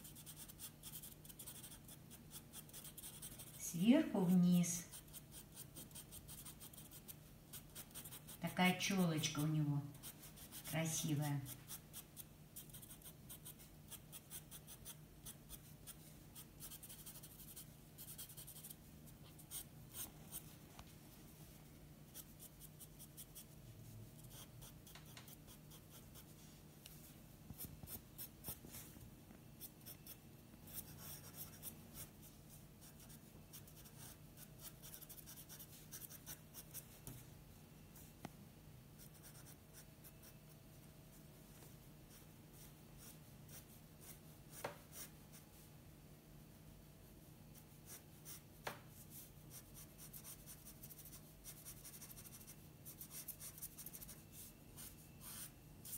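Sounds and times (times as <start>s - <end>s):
pencil scratching on paper: 0.0s - 20.5s, 24.2s - 26.4s, 29.6s - 32.1s, 32.8s - 37.2s, 39.0s - 39.9s, 49.0s - 55.9s.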